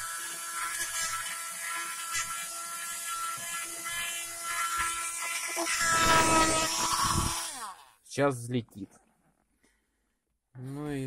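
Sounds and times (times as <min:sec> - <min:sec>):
handheld vacuum cleaner whining: 0:00.0 - 0:07.9.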